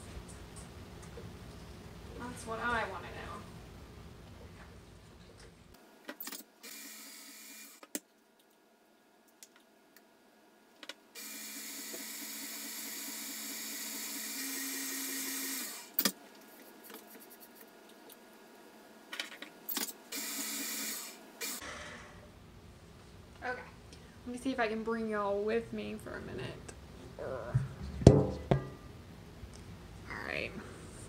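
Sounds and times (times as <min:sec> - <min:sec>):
electric stand mixer motor running: 0:11.2 - 0:15.9.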